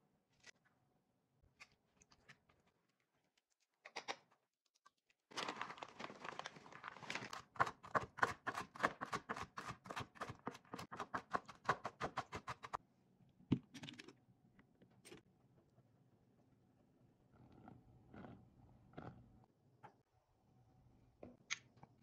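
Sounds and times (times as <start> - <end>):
knife chopping on wooden board: 7.6 - 12.8.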